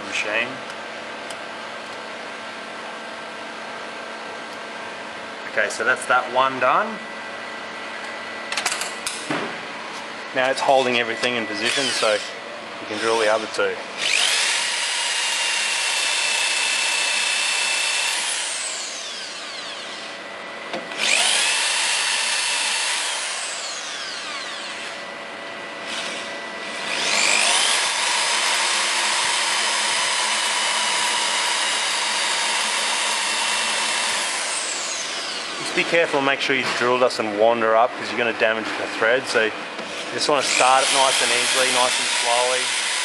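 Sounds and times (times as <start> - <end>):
electric drill motor whine: 10.6 - 35.8, 39.8 - 43.0.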